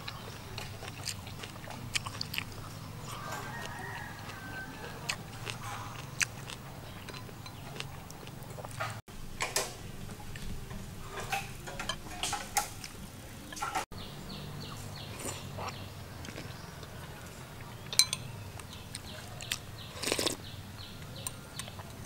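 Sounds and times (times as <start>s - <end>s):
chewing: 0.0s - 9.0s, 15.0s - 20.4s.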